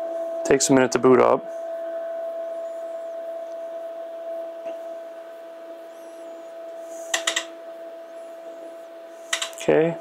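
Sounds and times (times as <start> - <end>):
steady hum: 0.0 - 10.0
attenuator relay clicks: 9.3 - 9.6.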